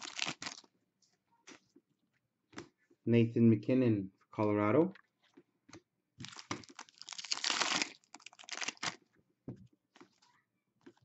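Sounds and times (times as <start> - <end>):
foil wrapper crinkling and tearing: 0.0 - 0.7, 6.2 - 9.0.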